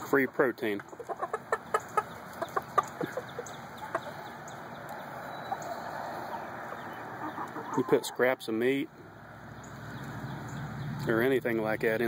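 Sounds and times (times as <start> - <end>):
chickens clucking: 0.0 - 11.3.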